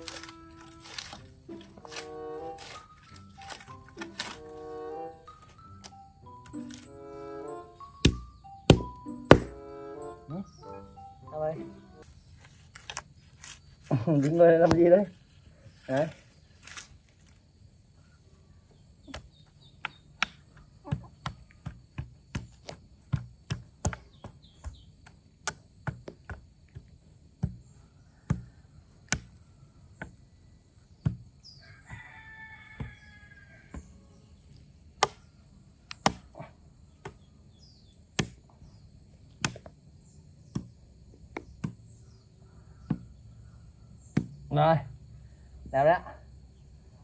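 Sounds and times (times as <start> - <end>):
shovel digging into soil: 0.0 - 6.9, 12.4 - 15.0, 15.9 - 17.4.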